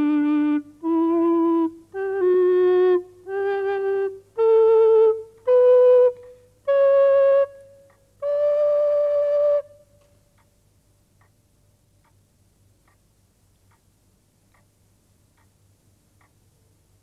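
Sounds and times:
faint even ticking: 0:09.9 - 0:17.0.

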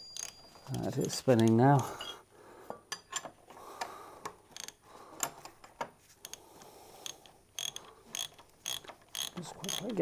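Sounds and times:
ratchet wrench clicking: 0:07.0 - 0:10.0.

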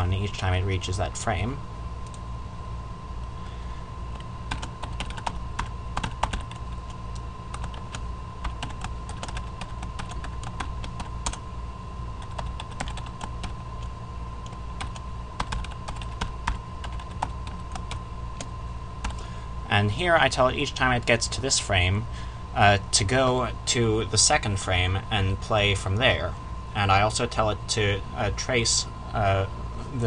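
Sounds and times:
steady low hum: 0:00.0 - 0:30.0
thin steady whine: 0:00.0 - 0:30.0
keyboard typing clicks: 0:12.2 - 0:13.6.

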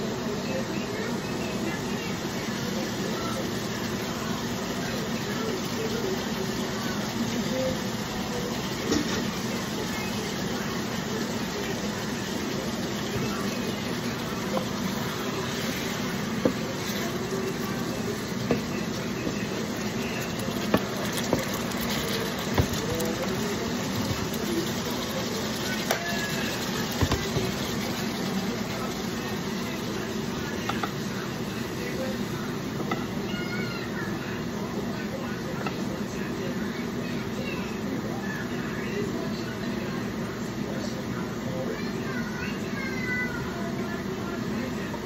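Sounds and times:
meat sizzling in a frying pan: 0:00.0 - 0:40.3
wooden spatula stirring: 0:12.8 - 0:29.8.

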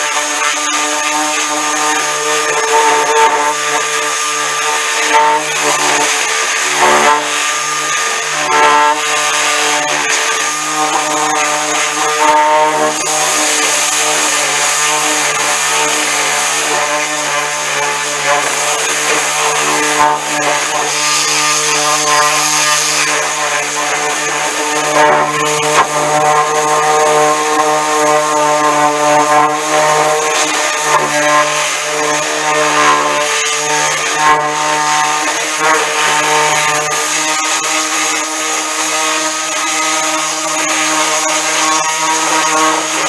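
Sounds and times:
orbital sander sanding metal: 0:00.0 - 0:43.0.

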